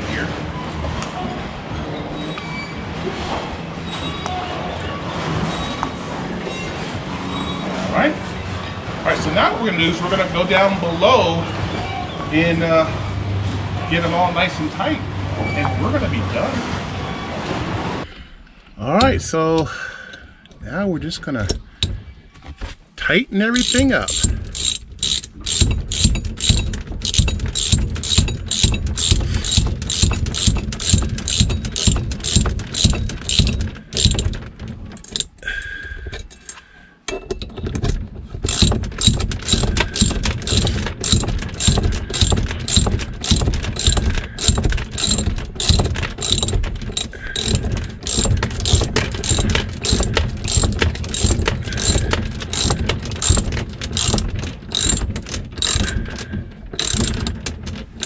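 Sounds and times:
socket ratchet clicking: 23.6s - 34.4s, 35.0s - 35.4s, 38.5s - 56.2s, 56.8s - 58.0s.

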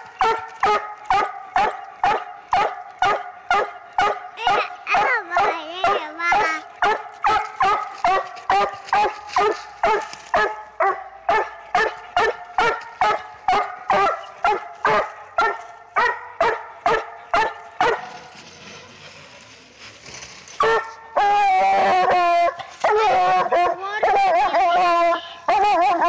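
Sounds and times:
dog barking: 0.2s - 18.1s, 20.6s - 21.3s, 22.8s - 24.7s.

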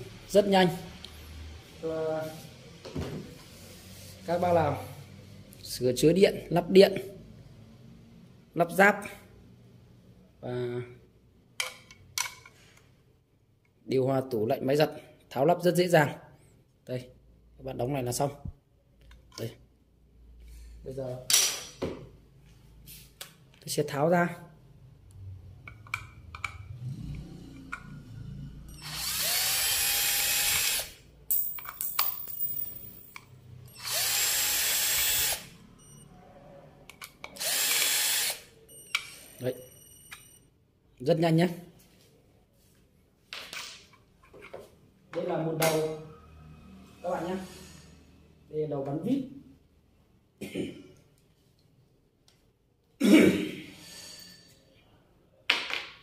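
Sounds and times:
cordless drill motor whine: 28.7s - 30.9s, 33.7s - 35.5s, 37.4s - 38.5s
man coughing: 50.4s - 51.0s, 53.0s - 53.7s.

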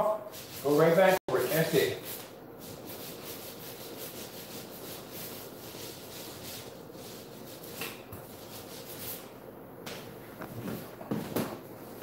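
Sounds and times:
paint applicator rubbing on wall: 0.3s - 9.3s.

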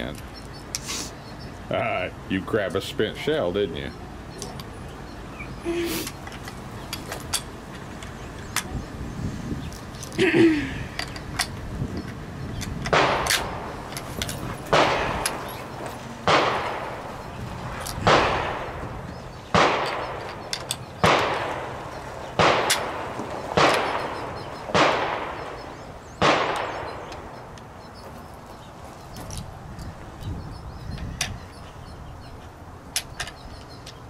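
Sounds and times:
echoing rifle shots: 12.9s - 13.9s, 14.6s - 27.5s.

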